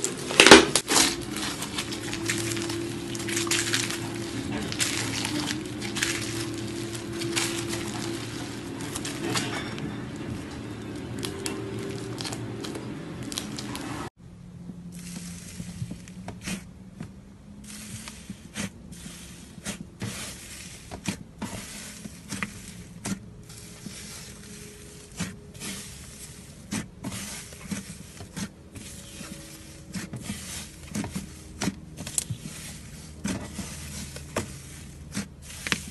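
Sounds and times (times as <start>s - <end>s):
slime squelching and popping: 0.3s - 9.4s.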